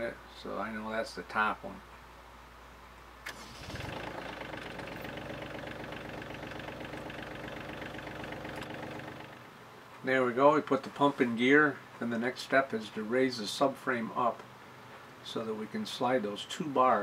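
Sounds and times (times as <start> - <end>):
diesel engine starting and idling: 3.3 - 9.4.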